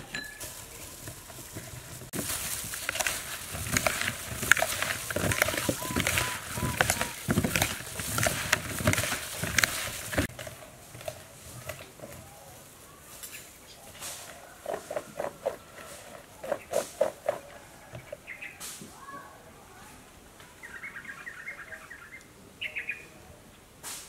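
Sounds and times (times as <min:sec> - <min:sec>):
fruit tossed in plastic bowl: 0:00.4 - 0:12.0
bird calls: 0:04.8 - 0:07.2, 0:12.1 - 0:19.3, 0:20.5 - 0:23.2.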